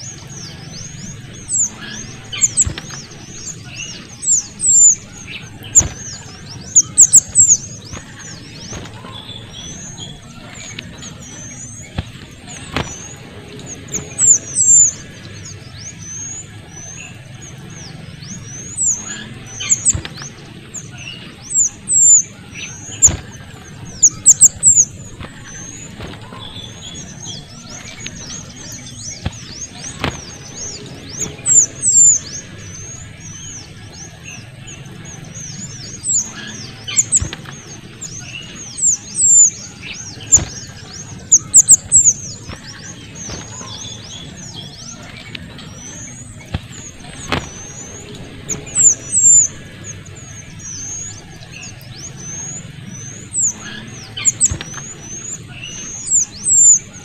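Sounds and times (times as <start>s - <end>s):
songbird squeaky chirps: 0.0s - 57.0s.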